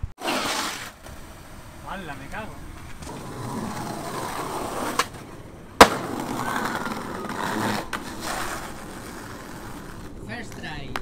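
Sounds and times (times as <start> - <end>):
skateboard wheels rolling: 0.0 - 11.0
skateboard tail pop: 5.8 - 8.5
skateboard landing slam: 5.8 - 8.6.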